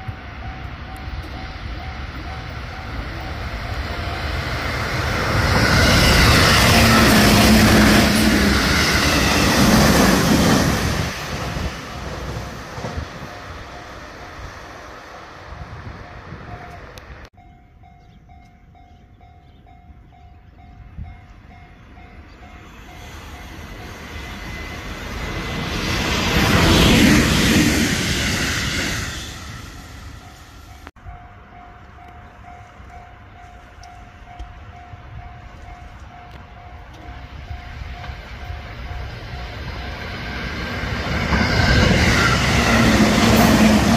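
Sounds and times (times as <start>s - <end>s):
level crossing warning bell: 0.0s - 4.6s, 30.2s - 40.0s
level crossing warning bell ringing: 0.0s - 4.6s
train rolling past: 0.0s - 43.9s.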